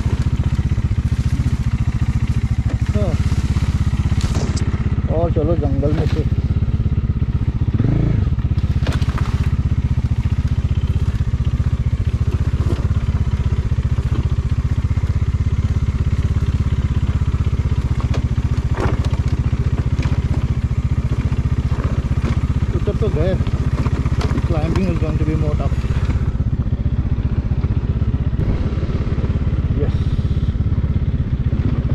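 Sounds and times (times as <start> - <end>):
motorcycle engine running: 0.0 - 31.9.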